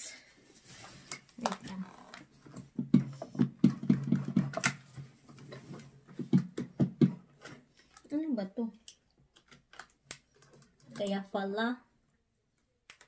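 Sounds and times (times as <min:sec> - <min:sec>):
plastic knocks and clicks: 0:01.4 - 0:07.6.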